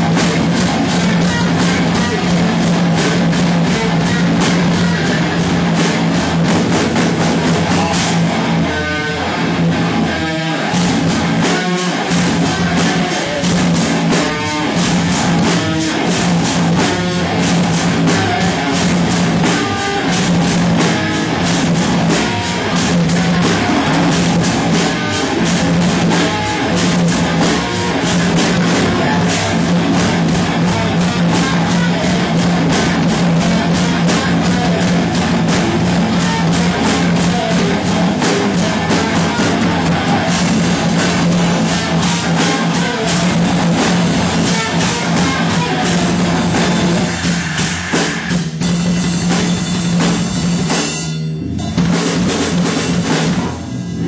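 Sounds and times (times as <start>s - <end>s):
fast dense drumming: 0.0s - 54.0s
guitar: 0.0s - 54.0s
steady low held note: 48.4s - 51.9s.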